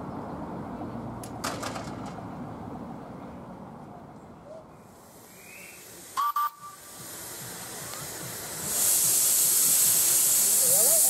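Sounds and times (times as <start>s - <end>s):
steam hissing: 4.9s - 11.0s
steam locomotive whistle toots: 5.2s - 7.1s.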